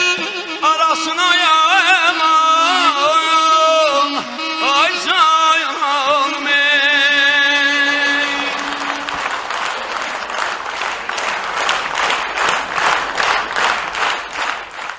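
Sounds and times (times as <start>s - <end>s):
audience applause: 7.6s - 14.9s.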